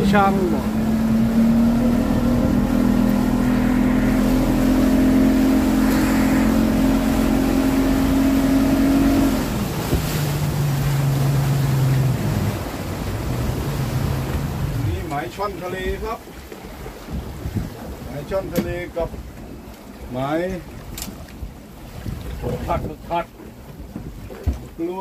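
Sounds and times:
wind rushing: 0.0 - 10.1
boat engine drone: 0.0 - 25.0
water rushing: 0.0 - 25.0.

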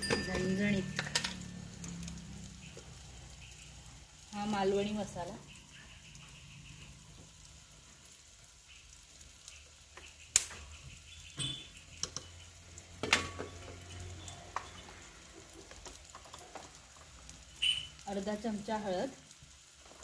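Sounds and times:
food frying with low sizzle: 0.0 - 20.0.

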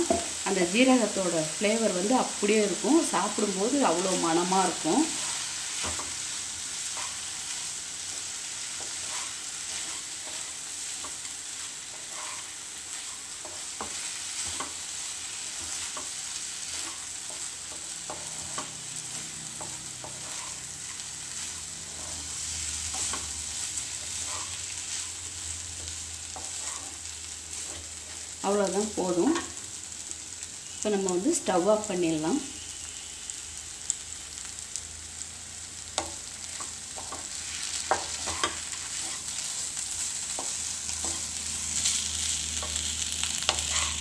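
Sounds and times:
food sizzling: 0.0 - 44.0
wooden spatula scraping pan: 8.8 - 11.2, 11.9 - 14.8, 19.6 - 23.3, 24.0 - 25.2, 25.8 - 28.3, 43.4 - 44.0.

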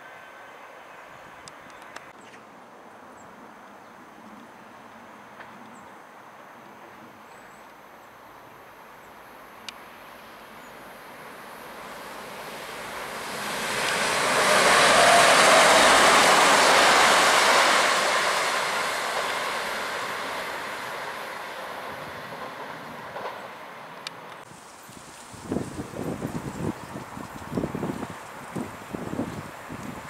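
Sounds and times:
diesel train passing: 8.6 - 30.0.

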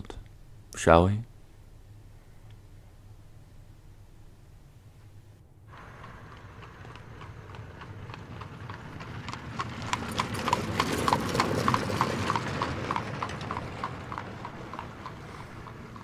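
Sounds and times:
low rumble: 1.3 - 16.0
horse hooves clip-clopping: 5.7 - 16.0.

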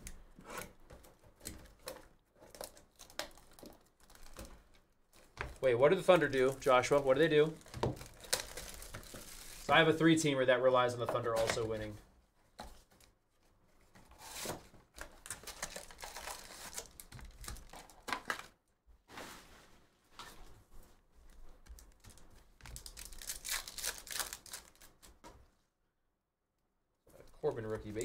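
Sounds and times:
card packs crinkling: 2.4 - 10.1, 14.2 - 18.6, 21.8 - 25.2.

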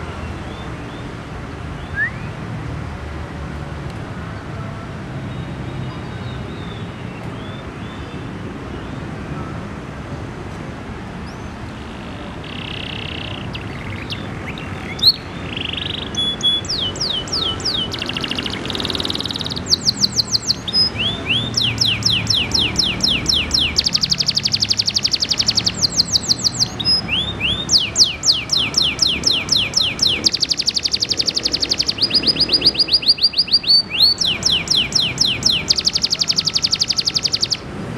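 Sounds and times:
canary singing trills: 12.3 - 37.7.

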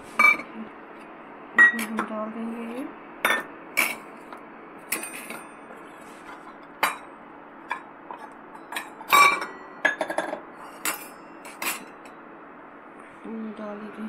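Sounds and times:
metal bowls clinking: 0.2 - 0.6, 4.9 - 5.6, 6.4 - 12.1.

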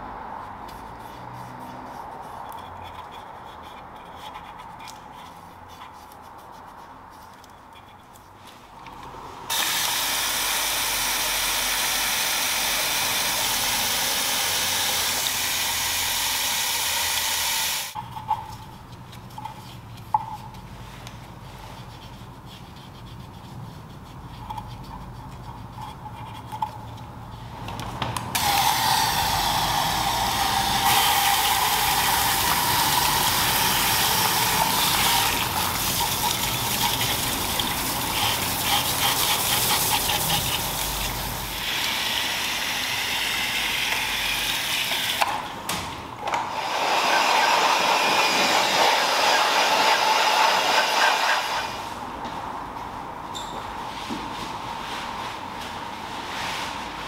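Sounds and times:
brush scrubbing: 0.7 - 8.7, 17.9 - 27.5, 30.2 - 41.6.

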